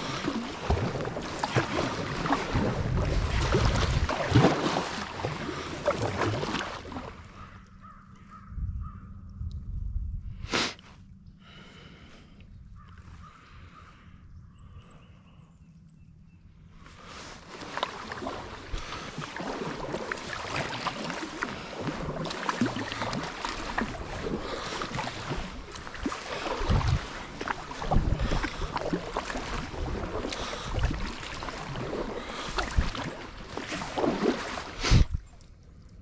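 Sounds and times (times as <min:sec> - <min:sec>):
paddle blades splashing: 0:00.0 - 0:07.6, 0:17.0 - 0:35.9
water moving along kayak hull: 0:00.0 - 0:09.0, 0:16.8 - 0:36.0.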